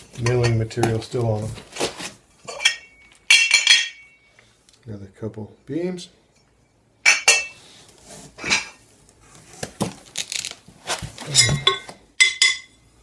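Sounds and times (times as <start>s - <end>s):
metal beams clinking together: 2.5s - 4.3s.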